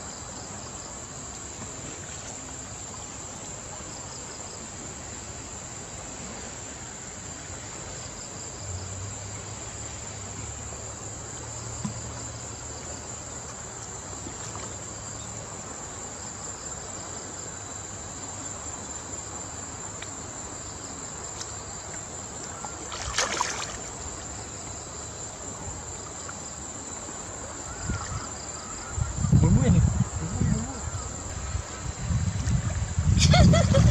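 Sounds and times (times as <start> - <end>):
insects chirring: 0.0 - 33.9
river water flowing: 0.0 - 33.9
water splash: 22.4 - 24.4.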